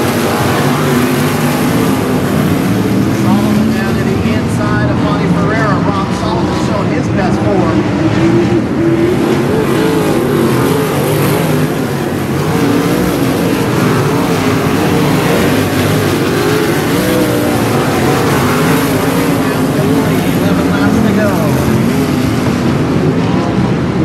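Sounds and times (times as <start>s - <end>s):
race car engines revving: 0.0s - 24.0s.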